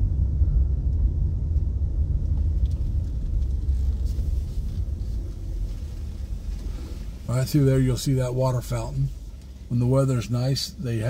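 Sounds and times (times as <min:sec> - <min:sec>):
car rolling on paved road: 0:00.8 - 0:11.0.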